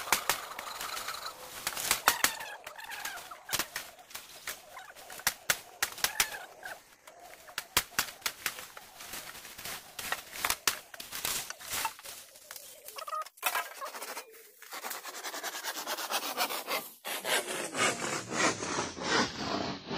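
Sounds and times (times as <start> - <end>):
bamboo poles cracking and clacking: 0.0 - 13.7
faint bird calls: 0.0 - 14.6.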